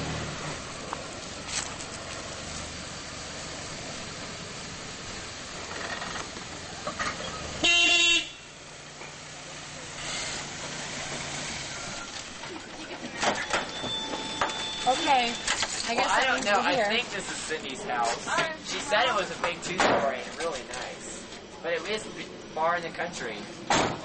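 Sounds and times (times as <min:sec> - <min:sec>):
pickup truck engine running: 0:00.0 - 0:13.3
short horn honk: 0:07.6 - 0:08.5.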